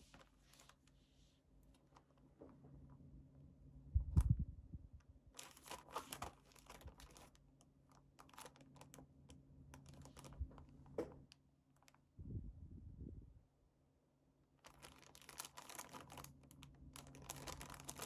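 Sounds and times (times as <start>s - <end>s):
plastic packaging crinkling: 5.4s - 9.1s, 9.7s - 12.0s, 14.6s - 18.0s.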